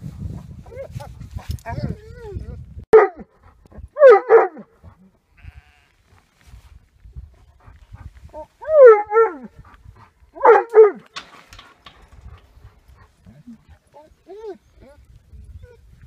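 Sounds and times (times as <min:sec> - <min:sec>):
sheep bleating: 0:05.4 - 0:06.0.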